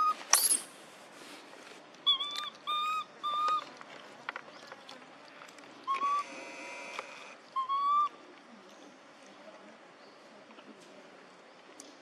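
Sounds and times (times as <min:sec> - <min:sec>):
infant monkey coo calls: 0:02.1 - 0:03.7, 0:05.9 - 0:06.4, 0:07.5 - 0:08.2.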